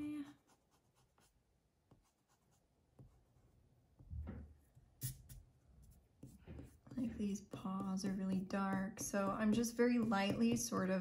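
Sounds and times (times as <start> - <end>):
hand knocking on paper: 6.2 - 11.0.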